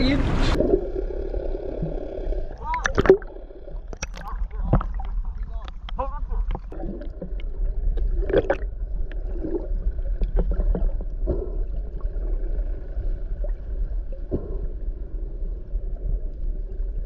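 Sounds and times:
low rumble: 0:00.0 - 0:17.0
muffled underwater gurgling: 0:00.0 - 0:17.0
short clicks and pops: 0:03.9 - 0:06.7.

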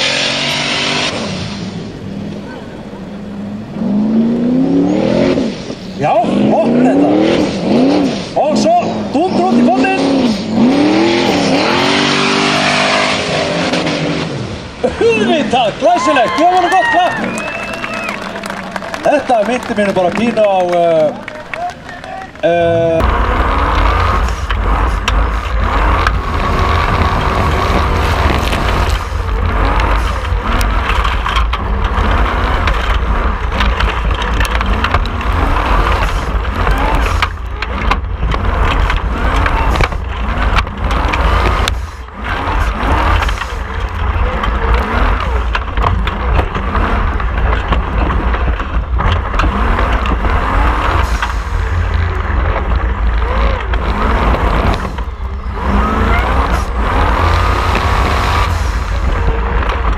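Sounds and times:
buggy engine revving: 0:00.0 - 0:59.9.

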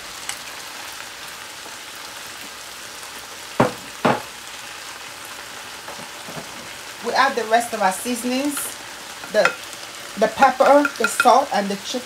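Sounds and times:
vegetables sizzling in a pan: 0:00.0 - 0:12.0
spatula knocking against pan: 0:09.4 - 0:09.6, 0:10.6 - 0:11.4.

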